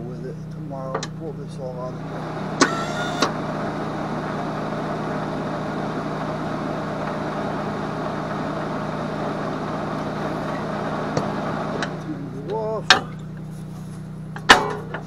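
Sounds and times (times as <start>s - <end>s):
welder humming and whirring: 2.0s - 12.5s.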